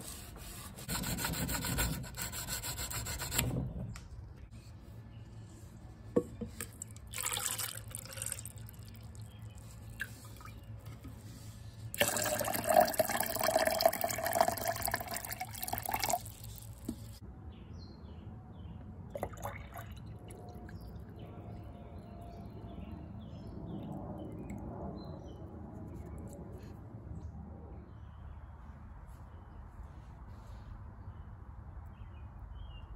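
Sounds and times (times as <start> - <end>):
thin stream into glass jar: 6.8 - 10.6, 11.9 - 16.9
water pouring into plastic cup: 7.1 - 9.3, 12.0 - 16.8, 19.2 - 20.4.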